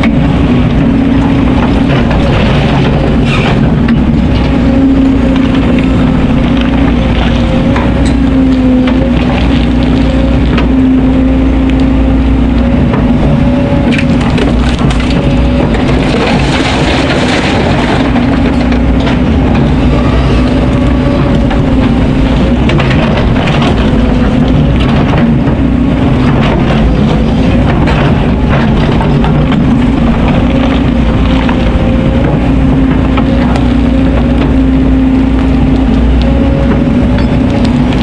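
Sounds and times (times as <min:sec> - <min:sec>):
excavator diesel engine running: 0:00.0 - 0:38.0
rock and sand clattering: 0:12.9 - 0:38.0.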